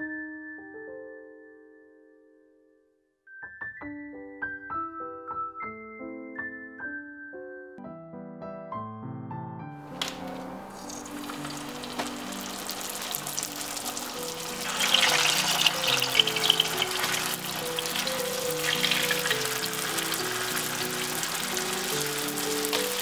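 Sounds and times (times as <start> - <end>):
soft background music: 0.0 - 23.0
spring rolls sizzling in hot oil: 9.8 - 23.0.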